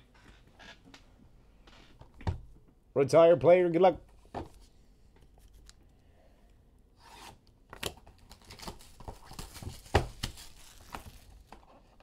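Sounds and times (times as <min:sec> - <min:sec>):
plastic ripping: 0:07.8 - 0:11.6
plastic wrapper crinkling: 0:08.1 - 0:11.6.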